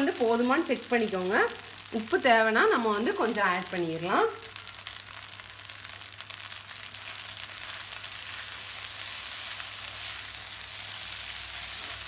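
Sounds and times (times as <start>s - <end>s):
food sizzling in frying pan: 0.0s - 12.0s
spatula stirring in pan: 4.6s - 12.0s.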